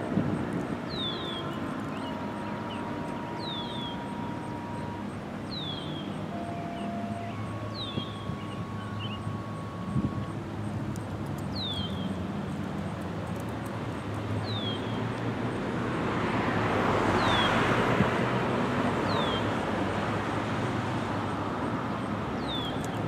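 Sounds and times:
vehicle passing: 0.0s - 22.6s
bird whistling: 0.9s - 10.3s.

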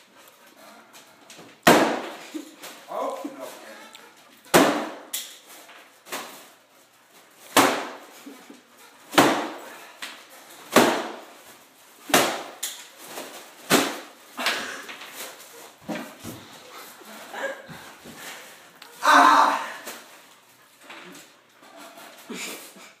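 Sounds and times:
hand slapping foil balloon: 1.3s - 3.0s, 4.3s - 6.6s, 7.4s - 16.5s.

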